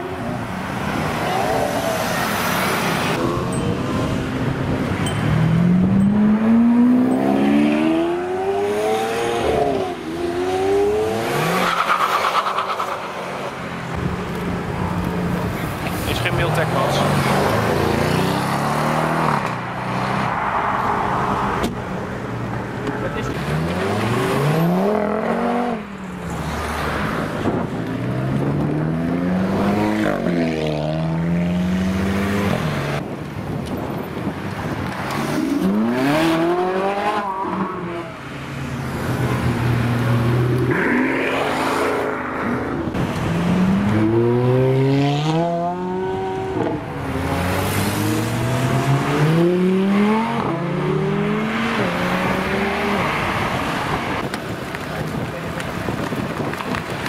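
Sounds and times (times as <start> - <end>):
sports car engine accelerating: 40.0 - 53.3.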